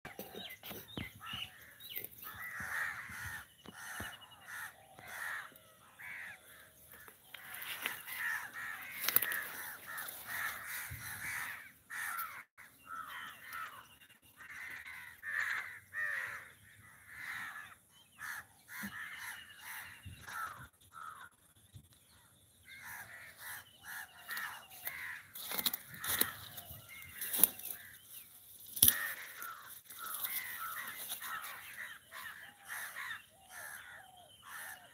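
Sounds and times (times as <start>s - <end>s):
crows cawing: 0.1s - 21.4s, 22.6s - 34.9s.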